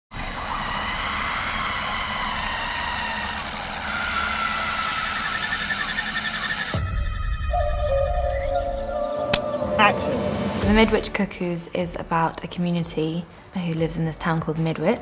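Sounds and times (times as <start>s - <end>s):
rumbling drone with high tones: 0.1s - 12.4s
pulsing wavering tone: 0.2s - 10.8s.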